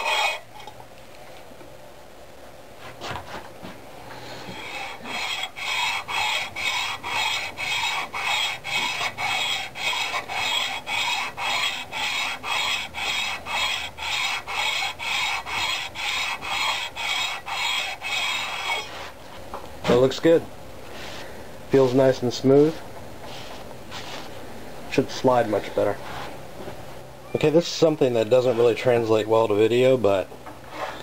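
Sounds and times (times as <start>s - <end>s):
metal rasping on emery cloth: 0.0s - 0.4s, 4.5s - 19.0s.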